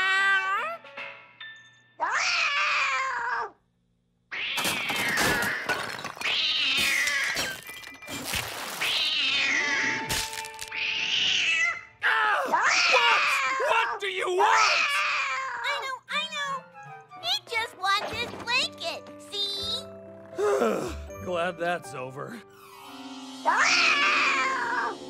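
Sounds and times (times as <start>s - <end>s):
cartoon cat yowling: 2.0s - 3.6s, 11.2s - 15.7s, 23.5s - 25.0s
china teacups shattering: 4.6s - 8.8s.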